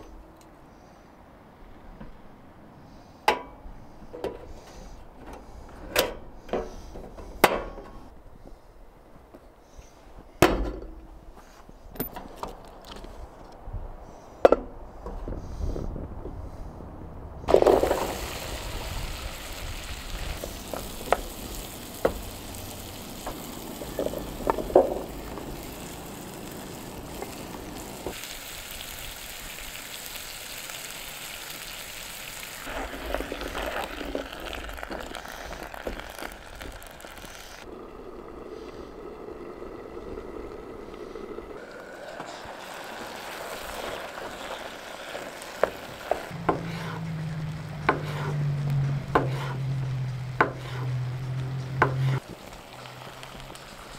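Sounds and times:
food sizzling in a pot: 0:17.5 - 0:37.6, 0:41.6 - 0:48.6, 0:52.0 - 0:53.9.

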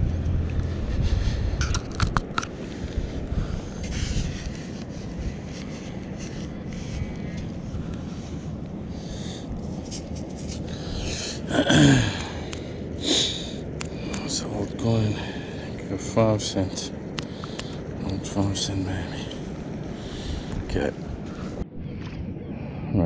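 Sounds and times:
wind rumble on microphone: 0:00.0 - 0:23.0
breathy vocal grunt: 0:11.2 - 0:12.5.

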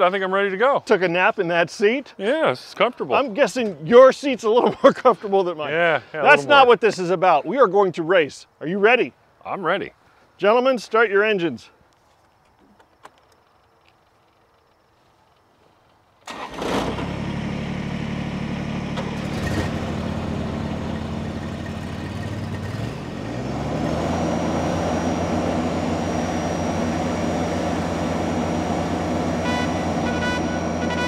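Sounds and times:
mower engines starting and running: 0:16.2 - 0:31.0.

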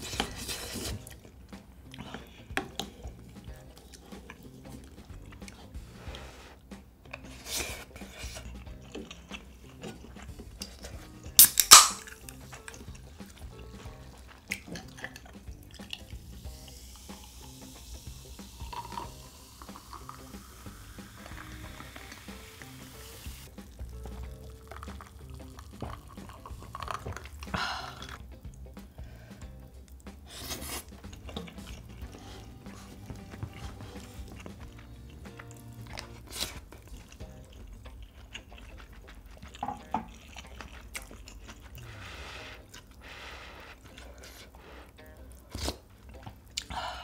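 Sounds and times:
quiet background music: 0:00.0 - 0:47.0
drink can opening with fizz: 0:09.8 - 0:12.8, 0:15.8 - 0:28.2.

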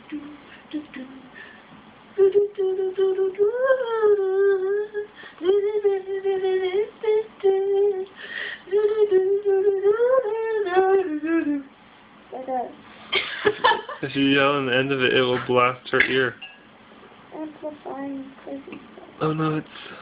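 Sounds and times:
person humming: 0:00.0 - 0:01.4, 0:02.2 - 0:08.1, 0:08.7 - 0:11.7.

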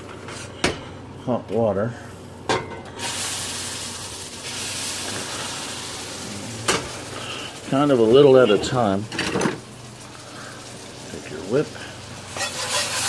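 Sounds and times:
water sizzling in a hot pan: 0:03.0 - 0:13.0.

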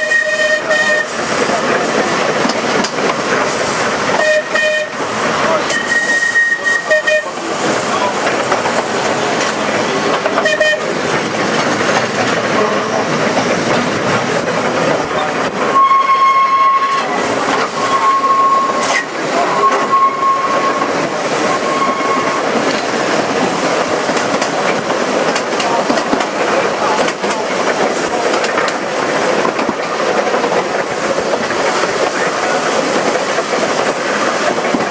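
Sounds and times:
tram wheels clattering on rails: 0:00.0 - 0:34.9
high whistle blasts: 0:05.7 - 0:07.2, 0:15.8 - 0:17.1, 0:17.8 - 0:19.0, 0:19.6 - 0:20.8.

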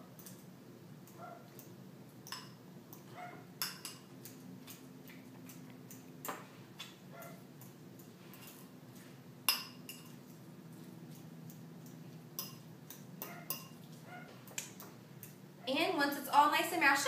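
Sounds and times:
fork clinking against glass bowl: 0:09.5 - 0:10.2, 0:12.4 - 0:13.8.

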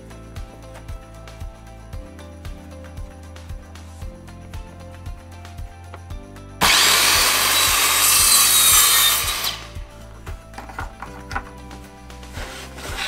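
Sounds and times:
background music: 0:00.0 - 0:13.0
circular saw cutting wood: 0:06.6 - 0:09.8, 0:12.3 - 0:13.0.

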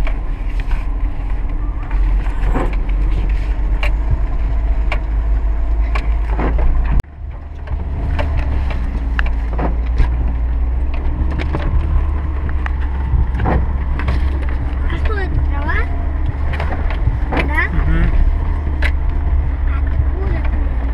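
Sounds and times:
car body knocks and rattles: 0:00.0 - 0:20.9
car engine and road rumble: 0:00.0 - 0:20.9.

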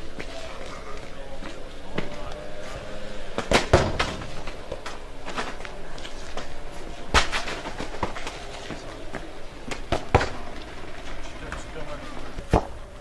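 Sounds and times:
ball banging against metal gate: 0:03.4 - 0:05.0.

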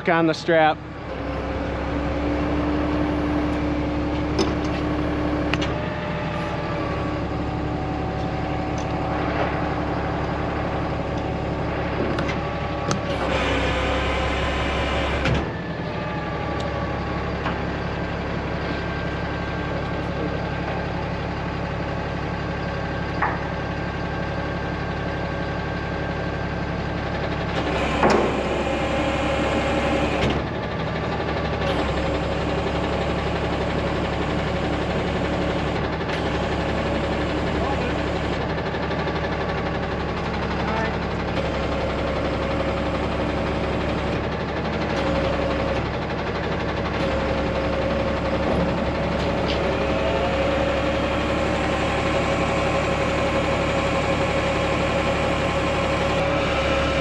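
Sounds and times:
hydraulic crane whine: 0:00.0 - 0:57.0
truck engine running: 0:00.0 - 0:57.0.

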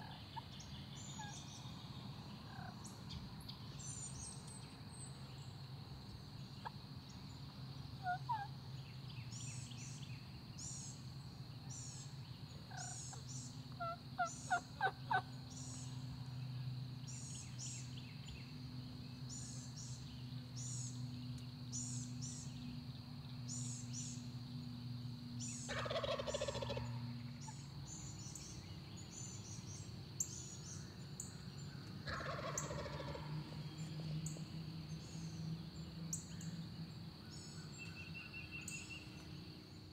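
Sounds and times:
small birds singing: 0:00.0 - 0:39.9
turkey gobbling: 0:13.8 - 0:15.2, 0:25.7 - 0:27.0, 0:32.0 - 0:33.3.

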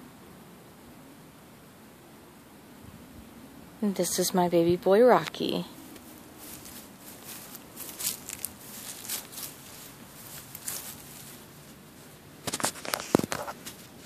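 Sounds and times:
wood-chip mulch crackling: 0:05.2 - 0:14.0.

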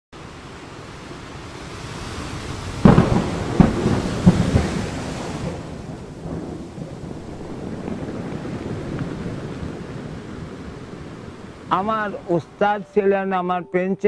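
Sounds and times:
rain hissing: 0:00.2 - 0:13.0
thunderclap: 0:02.6 - 0:12.0.

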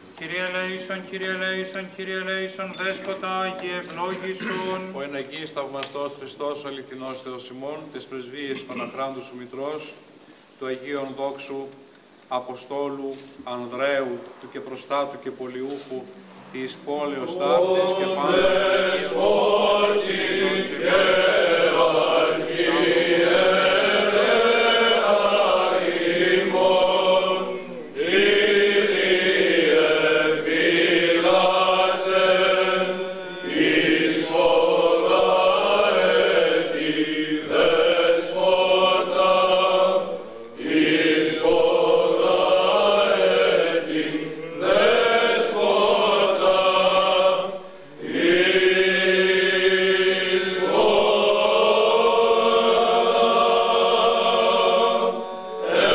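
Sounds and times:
group of voices chanting: 0:17.5 - 0:55.9.

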